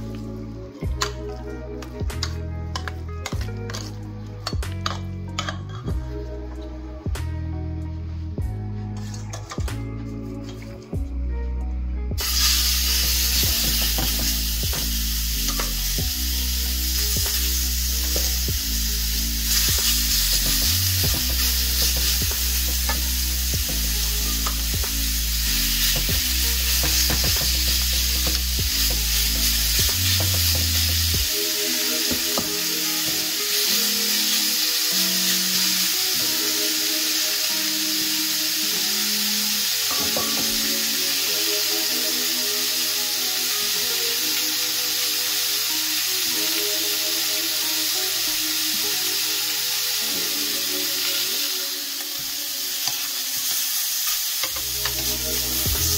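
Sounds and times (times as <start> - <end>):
background music: 0.0 - 55.9
meat sizzling in a frying pan: 12.2 - 55.9.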